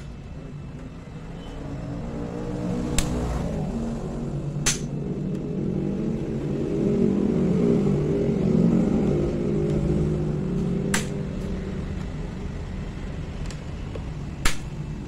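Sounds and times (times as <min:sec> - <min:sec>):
low engine-like rumble: 0:00.0 - 0:15.0
plastic clip snapping: 0:04.6 - 0:04.9.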